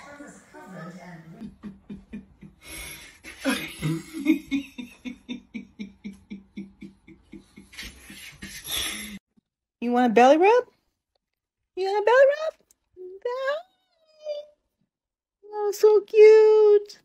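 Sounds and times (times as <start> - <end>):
person laughing hard: 1.4 - 9.2.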